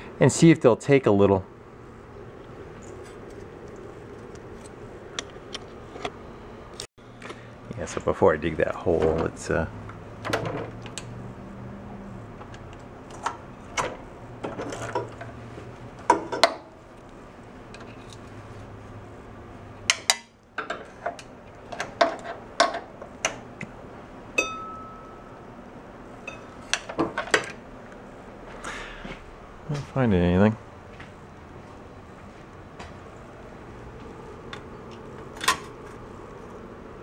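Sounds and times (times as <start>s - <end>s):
ringing metal clink: 24.4s - 25.4s.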